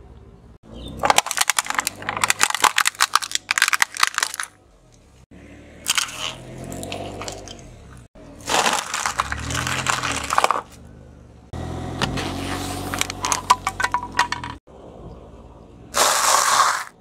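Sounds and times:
plastic toy cracking under tyre: 0:01.0 - 0:04.5, 0:08.4 - 0:10.7
faint crunch under tyre: 0:05.9 - 0:11.0.

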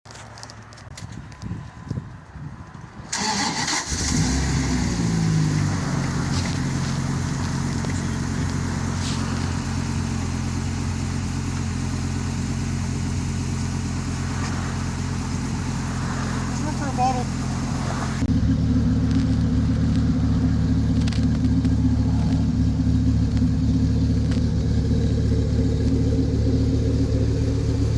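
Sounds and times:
engine cranking and starting: 0:03.1 - 0:05.2
engine idling: 0:03.2 - 0:27.9.

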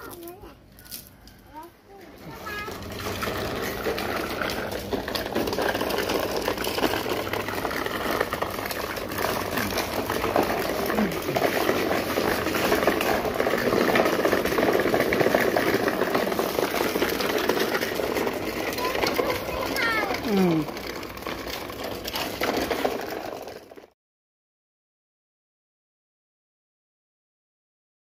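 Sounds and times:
bicycle wheels rattling on paving: 0:02.2 - 0:24.0.

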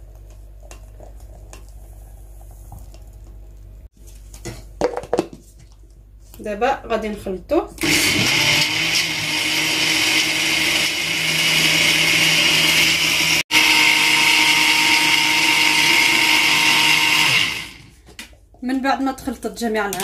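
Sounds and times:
blender running: 0:07.8 - 0:18.0.

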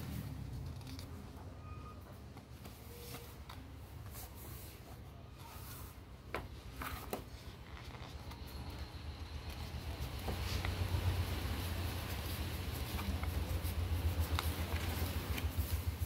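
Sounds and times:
paper rustling and crinkling: 0:00.3 - 0:01.4, 0:02.4 - 0:16.0
paper crackles: 0:06.7 - 0:16.0.

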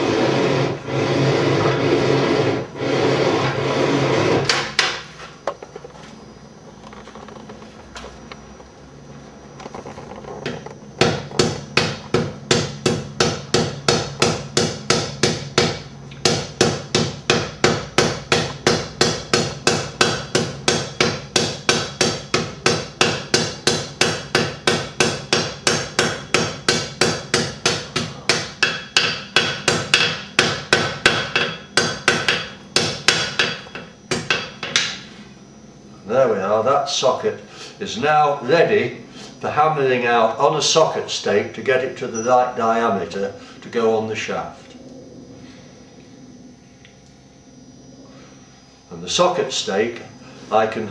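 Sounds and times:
hammer striking iron on anvil: 0:11.0 - 0:35.0.

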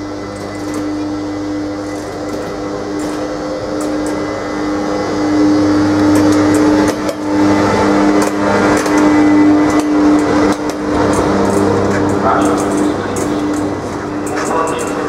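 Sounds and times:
electric locomotive hum: 0:00.0 - 0:15.0
wheels clicking over rail joints: 0:01.8 - 0:04.3, 0:05.9 - 0:15.0.

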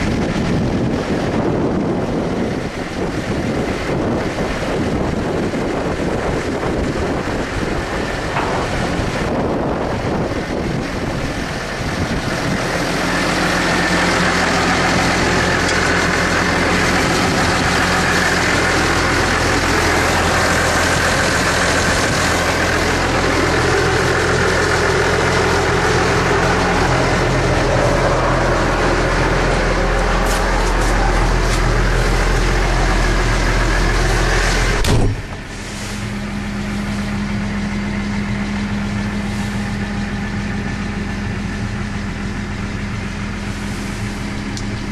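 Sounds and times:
tractor diesel engine idling: 0:00.0 - 0:44.9
sharp knock: 0:34.8 - 0:35.3.

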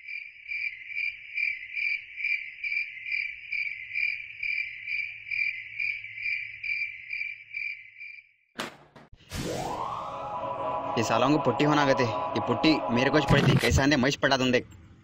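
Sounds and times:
cricket chirping: 0:00.0 - 0:08.4
sharp knock: 0:08.6 - 0:09.2.

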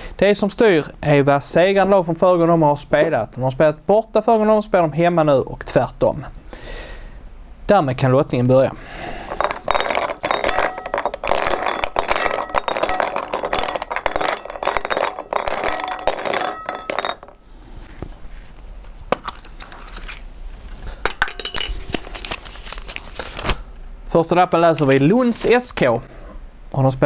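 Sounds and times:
balls clinking in a glass bowl: 0:09.3 - 0:17.4, 0:21.0 - 0:22.2.

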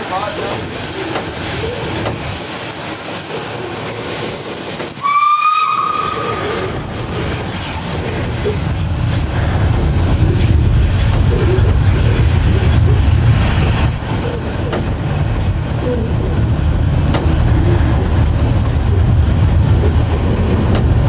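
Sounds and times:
steam hiss and train noise: 0:00.0 - 0:21.0
steam locomotive whistle: 0:05.0 - 0:06.8
low rumble: 0:06.0 - 0:21.0.

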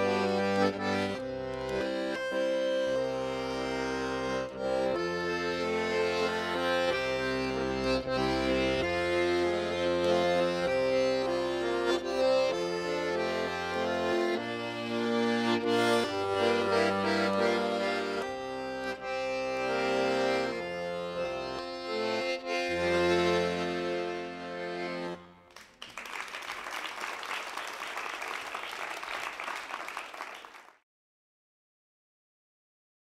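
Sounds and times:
piano accordion playing: 0:00.0 - 0:25.7
audience applauding: 0:25.5 - 0:30.8.

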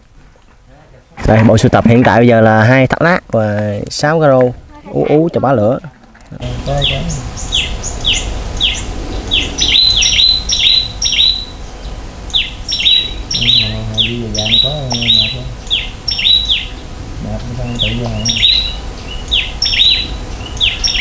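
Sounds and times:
songbird singing high notes: 0:06.5 - 0:16.9, 0:17.6 - 0:21.0.

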